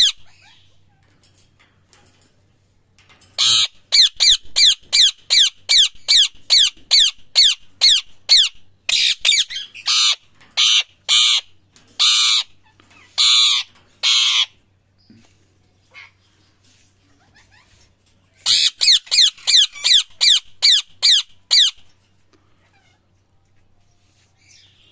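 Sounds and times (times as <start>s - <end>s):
parakeet squawking: 3.4s - 14.6s, 17.2s - 21.8s.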